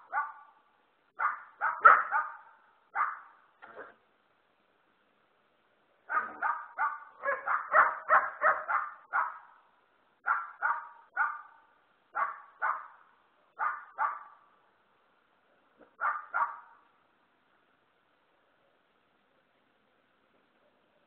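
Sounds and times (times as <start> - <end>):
dogs barking: 0.0 - 0.6, 1.2 - 3.4, 6.1 - 9.5, 10.2 - 13.0, 13.6 - 14.4, 16.0 - 16.8.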